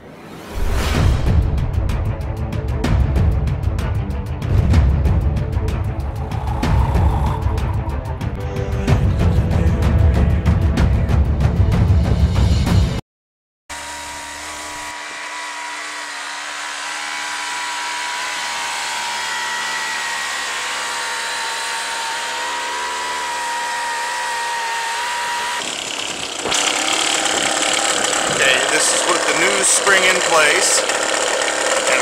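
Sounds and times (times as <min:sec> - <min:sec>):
outboard motor idling: 0:16.6 - 0:32.0.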